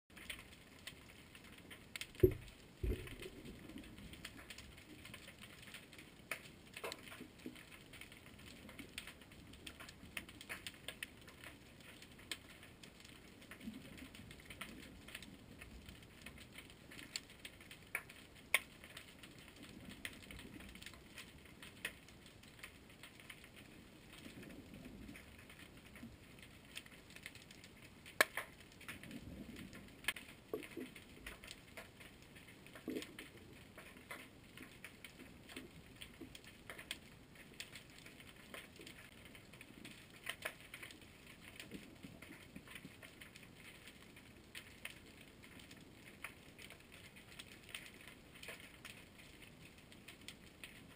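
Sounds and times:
underwater crackle of clicks: 0:00.1 - 0:50.9
low thumps: 0:02.2 - 0:03.2.

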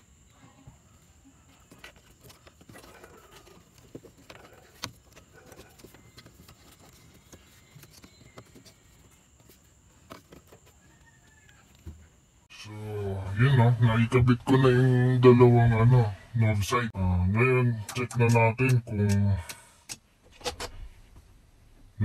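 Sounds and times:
hands handling plastic parts: 0:01.5 - 0:12.1.

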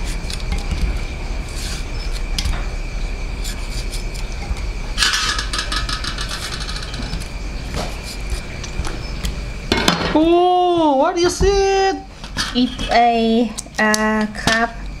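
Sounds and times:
metallic rattling and scraping: 0:03.4 - 0:07.4.

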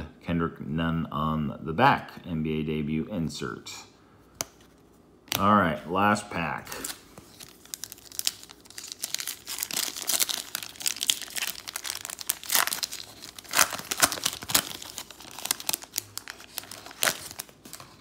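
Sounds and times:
card pack wrapper tearing and crinkling: 0:06.7 - 0:18.0.

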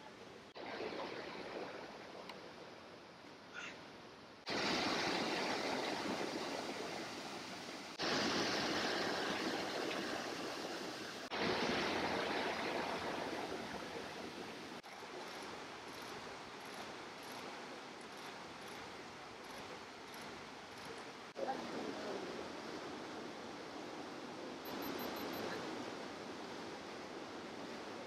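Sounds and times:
creek rushing over rocks: 0:04.5 - 0:24.3.

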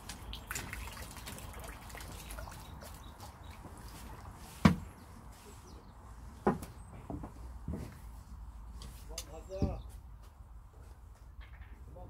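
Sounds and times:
water dripping and trickling: 0:00.0 - 0:05.0.

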